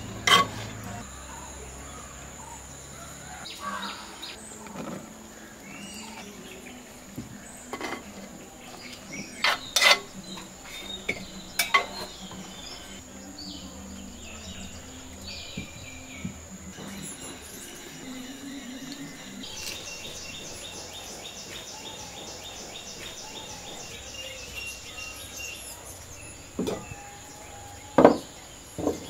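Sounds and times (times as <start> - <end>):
high insect drone: 0.0 - 29.0
clay cookware and spoon clinking: 0.2 - 1.0, 7.2 - 13.0.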